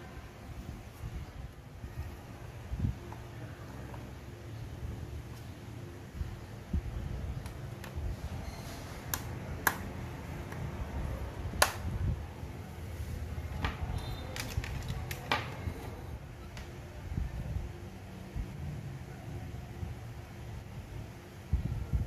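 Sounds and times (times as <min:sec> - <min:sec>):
sharp plastic clicks: 0:09.0 - 0:10.7, 0:11.5 - 0:12.0.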